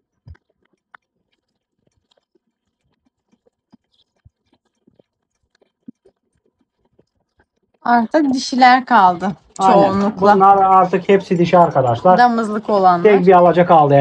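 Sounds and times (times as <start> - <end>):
sheep chewing and licking: 0.0 - 14.0.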